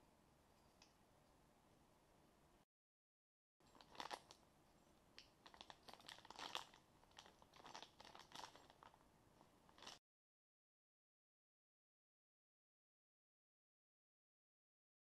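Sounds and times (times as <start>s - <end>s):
plastic bag crinkling: 3.6s - 4.4s, 5.2s - 9.0s, 9.7s - 10.0s.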